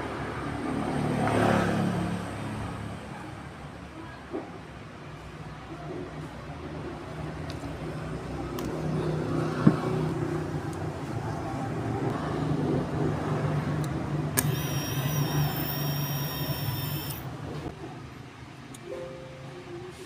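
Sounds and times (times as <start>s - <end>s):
steady low hum: 13.8s - 17.7s
starter motor high whine: 14.3s - 17.3s.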